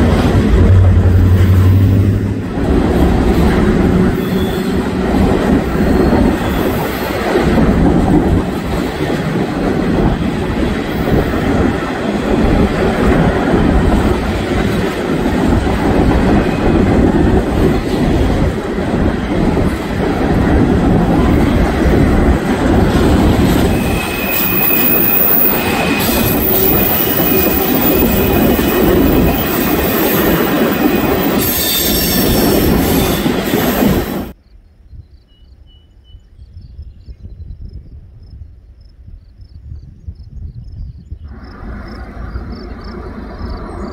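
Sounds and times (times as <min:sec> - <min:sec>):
freight train wheels rumbling on rail: 0:00.0 - 0:34.4, 0:41.3 - 0:43.9
high wheel squeal: 0:04.1 - 0:05.0, 0:05.6 - 0:07.2, 0:23.6 - 0:34.3.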